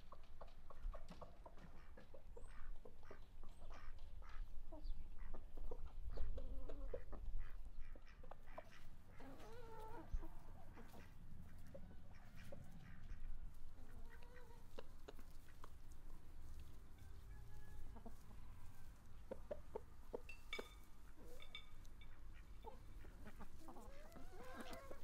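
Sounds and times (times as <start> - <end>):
chickens clucking: 0.0 - 25.0
ducks quacking: 1.2 - 15.7, 22.0 - 25.0.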